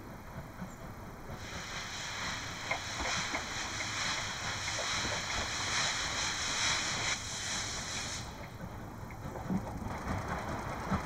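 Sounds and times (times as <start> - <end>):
steam hissing from locomotive: 1.3 - 8.7.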